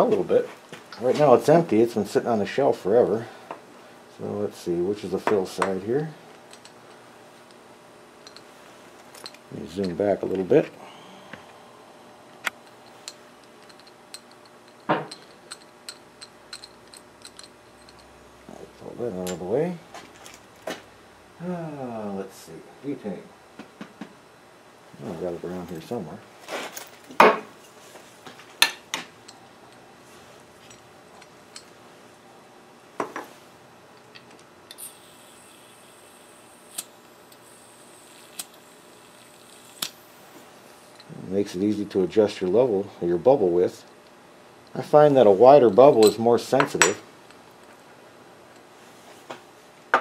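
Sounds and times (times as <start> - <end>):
small metal and glass parts clicking: 6.5 - 6.8, 8.2 - 8.5, 12.6 - 18.2.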